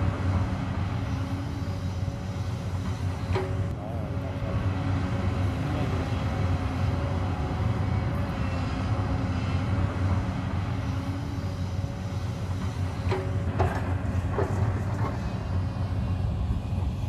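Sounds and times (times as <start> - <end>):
engine whine: 0.0 - 17.0
excavator diesel engine running: 0.0 - 17.0.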